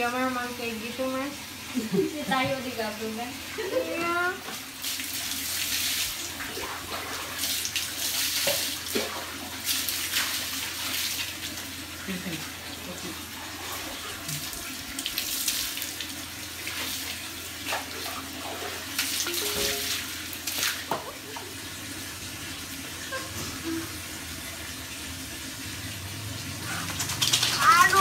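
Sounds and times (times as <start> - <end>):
hose water spraying: 0.0 - 22.2, 23.0 - 28.0
water splashing on concrete: 4.6 - 13.1, 13.9 - 21.5, 26.4 - 28.0.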